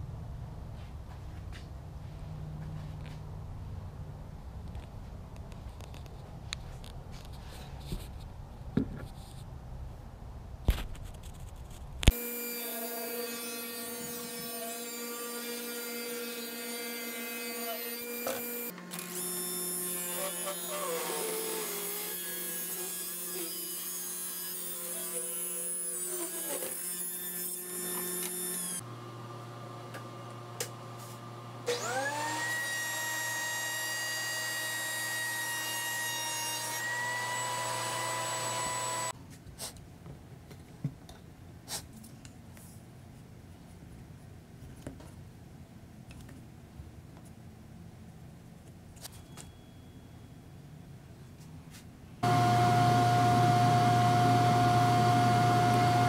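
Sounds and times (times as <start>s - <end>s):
thickness planer whining: 12.2s - 28.8s, 31.6s - 39.1s, 52.2s - 56.0s
table saw running: 31.7s - 39.1s, 52.2s - 56.0s.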